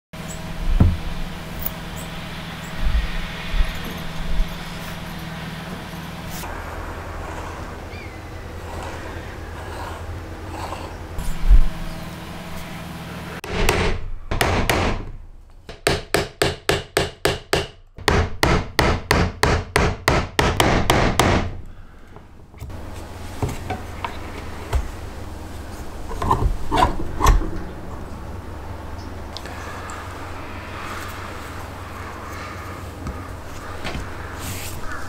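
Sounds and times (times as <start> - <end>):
hammer striking chisel: 15.7 - 21.5.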